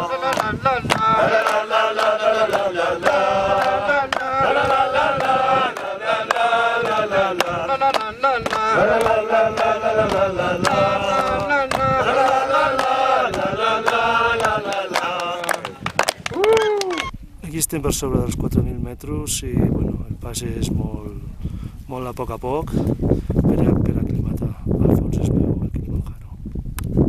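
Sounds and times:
men singing in unison: 0.0s - 16.0s
rhythmic hand claps: 0.0s - 17.1s.

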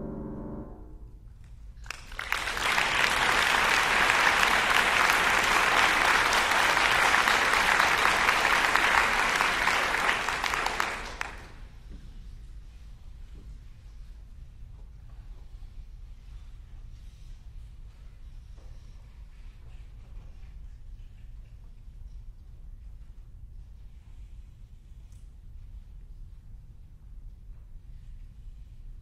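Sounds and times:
piano chord: 0.0s - 1.2s
audience applauding: 1.8s - 11.7s.

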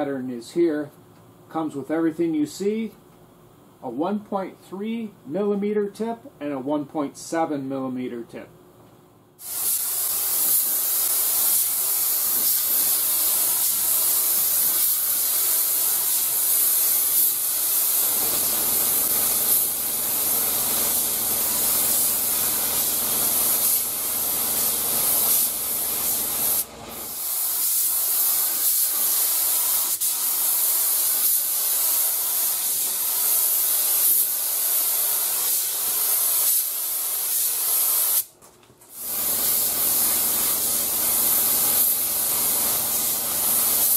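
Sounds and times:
spray gun air hiss: 9.4s - 43.9s.

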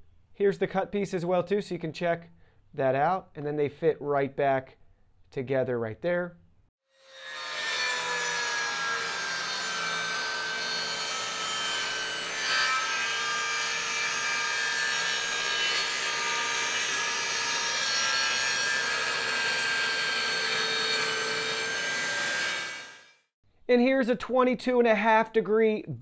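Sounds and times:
saw blade cutting wood: 7.0s - 23.2s
table saw motor whine: 7.0s - 23.3s.

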